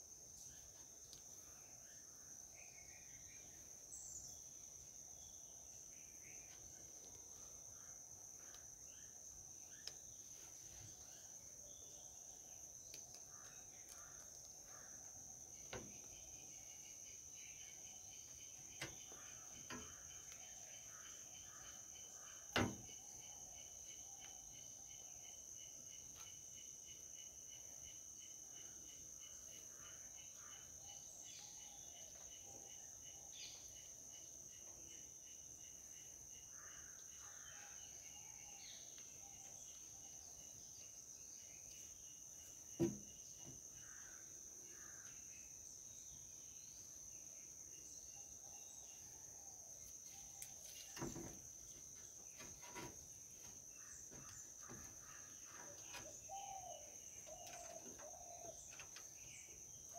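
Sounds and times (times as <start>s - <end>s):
faint bird chirps: 0.0s - 59.9s.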